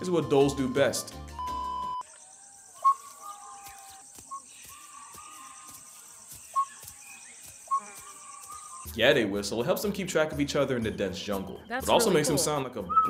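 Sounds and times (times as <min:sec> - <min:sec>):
drawn-out whistles: 0:00.0 - 0:04.9, 0:06.5 - 0:06.9, 0:12.8 - 0:13.0
wild dogs whistling: 0:00.0 - 0:09.0.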